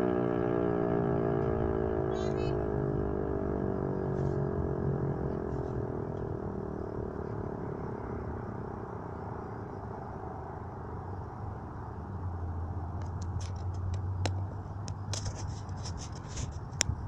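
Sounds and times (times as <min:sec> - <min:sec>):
siren winding down: 0:00.0 - 0:10.3
low steady rumble: 0:00.0 - 0:17.0.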